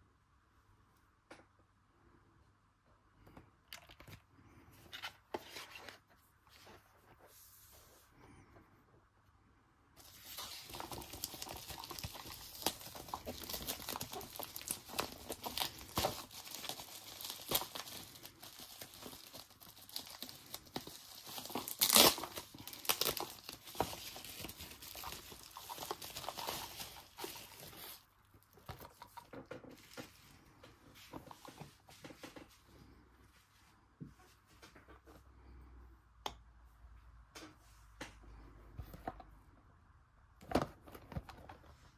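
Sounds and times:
bubble wrap crinkling and tearing: 10.0 - 30.3.

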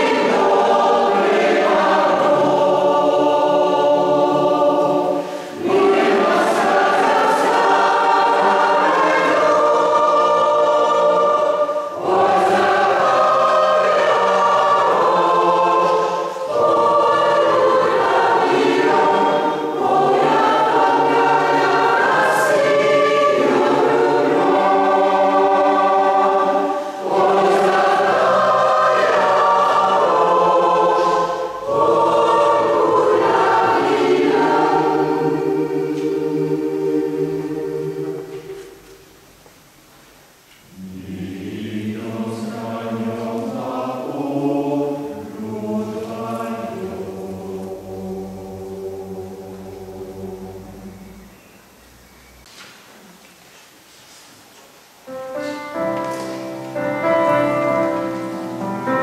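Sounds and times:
choir singing: 0.0 - 39.2, 40.6 - 51.8, 55.1 - 59.0
singers breathing: 5.2 - 5.6, 26.7 - 27.1.

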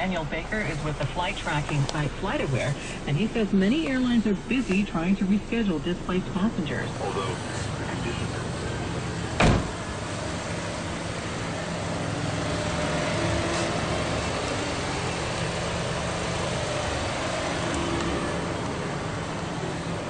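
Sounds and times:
low hum: 0.0 - 20.0
car door shutting: 9.3 - 9.8.

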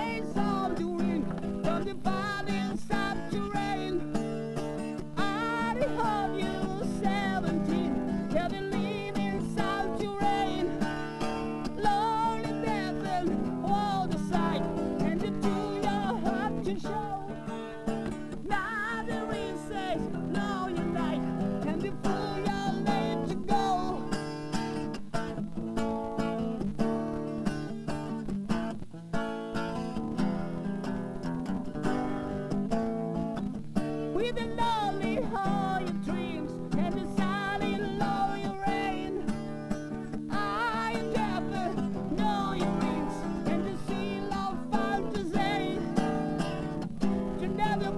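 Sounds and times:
acoustic guitar playing: 0.0 - 47.9.

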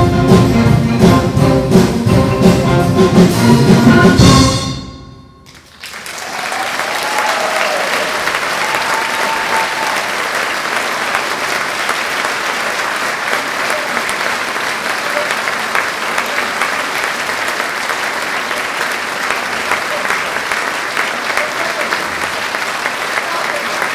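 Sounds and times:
audience applause: 5.5 - 23.9
audience cheering: 5.6 - 23.9.

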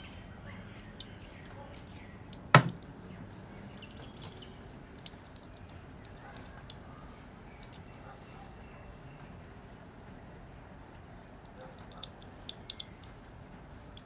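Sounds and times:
metal part clicking and tapping: 5.0 - 6.8, 11.4 - 13.2.

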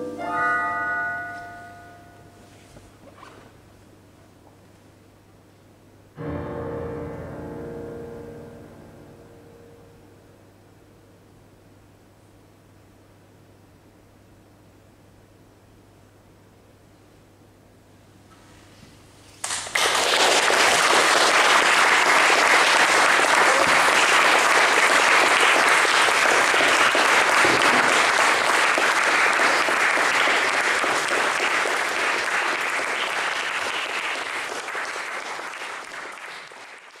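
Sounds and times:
audience applauding: 19.4 - 37.0.

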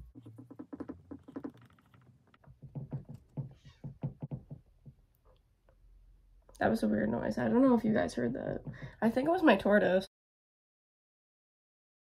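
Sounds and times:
irregular clicks and squeaks: 0.0 - 4.5.

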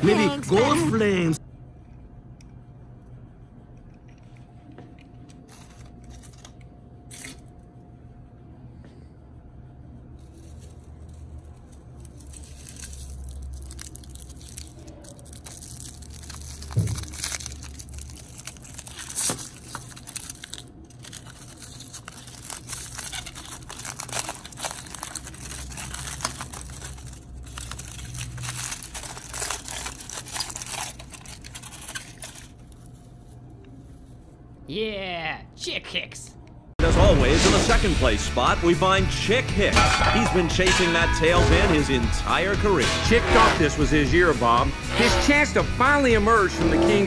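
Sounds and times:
aluminium foil crinkling: 5.4 - 7.5, 10.2 - 33.4.

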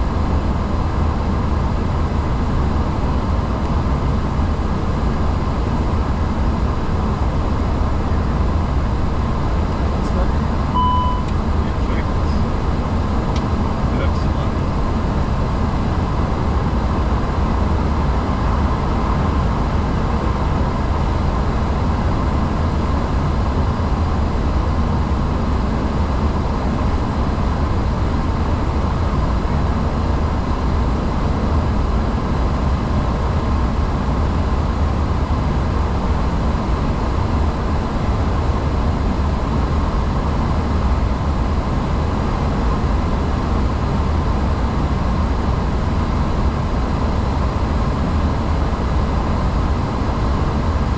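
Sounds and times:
airplane engines and airflow rumble: 0.0 - 50.9
faint steady hum: 1.8 - 20.7.

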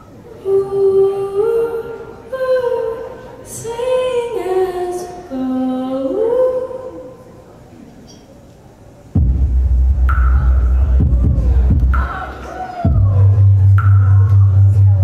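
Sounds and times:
woman singing long notes: 0.4 - 7.2
instrumental backing: 9.2 - 15.0.

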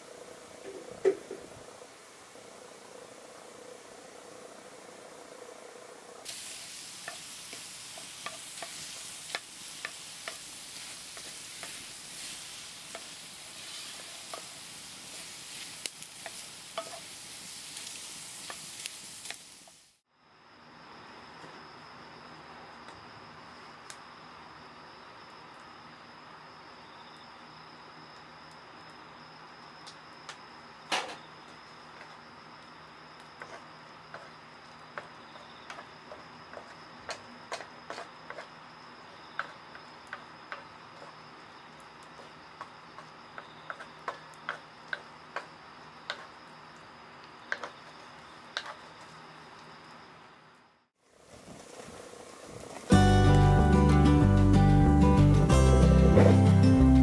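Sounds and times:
high cricket trill: 0.0 - 50.9, 52.8 - 57.0
apples sizzling in a pan: 6.2 - 20.1, 27.4 - 50.2, 51.0 - 57.0
spatula tapping and scraping pan: 7.0 - 15.2, 16.0 - 17.2, 34.9 - 38.5, 39.3 - 41.2, 43.4 - 46.4.

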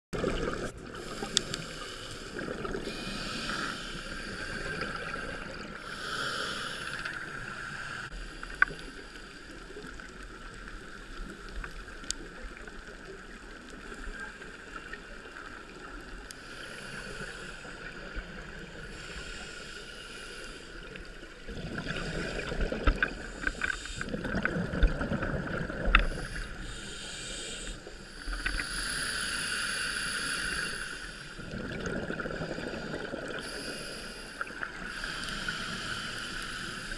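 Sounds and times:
exhaled bubbles rushing: 0.2 - 1.2, 24.1 - 26.0, 31.4 - 33.4
scuba regulator hissing inhalations: 1.0 - 9.4, 16.4 - 21.0, 23.2 - 24.2, 26.0 - 31.5, 32.4 - 36.9.

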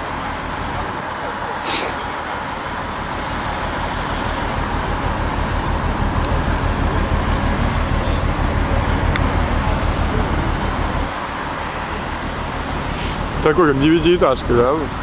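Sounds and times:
ship engine hum and rumble: 0.0 - 15.0
hiss: 12.9 - 13.3.

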